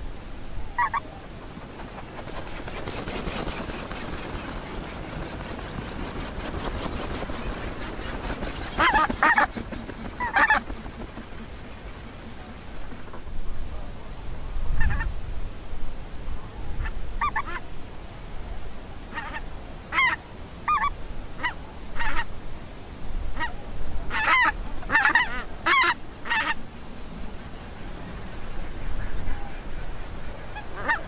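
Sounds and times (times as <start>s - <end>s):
geese honking: 0.8s - 1.0s, 7.3s - 10.8s, 24.1s - 26.6s, 27.6s - 31.0s.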